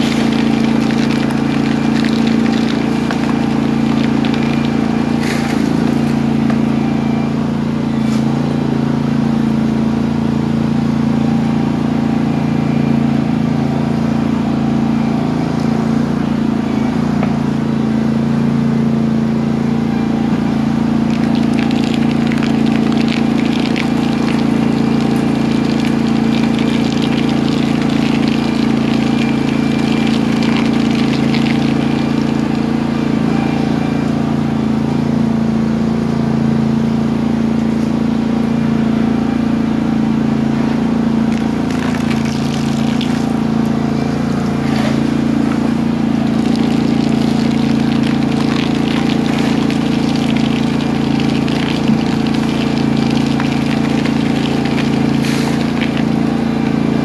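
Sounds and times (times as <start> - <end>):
floor scraper motor running: 0.0 - 57.0.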